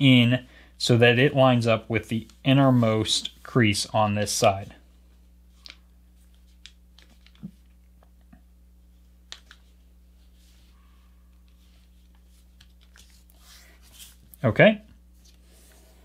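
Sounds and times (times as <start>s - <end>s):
low steady hum: 0.0s - 16.0s
paper crinkling: 11.5s - 14.4s.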